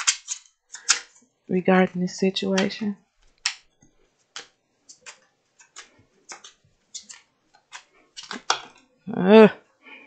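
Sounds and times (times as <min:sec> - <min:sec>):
cards being shuffled: 0:00.0 - 0:01.2, 0:02.6 - 0:08.9.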